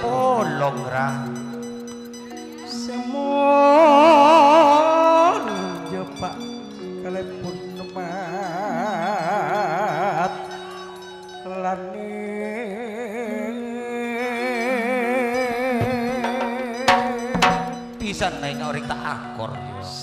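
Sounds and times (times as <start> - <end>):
ringing instrument tones: 0.0 - 11.5, 15.3 - 18.7
person singing with vibrato: 2.6 - 18.0.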